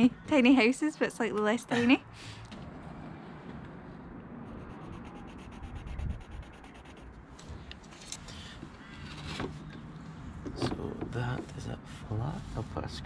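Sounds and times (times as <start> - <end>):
pencil scratching on board: 4.5 - 7.1.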